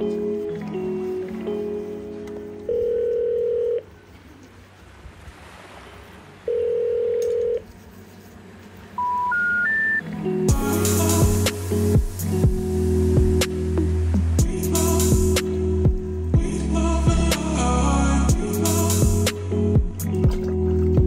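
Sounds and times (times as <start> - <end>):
music: 0.0 - 2.8, 10.0 - 21.0
telephone ringback tone: 2.7 - 3.9, 6.5 - 7.6, 9.0 - 10.0
three rising information tones: 9.0 - 10.0.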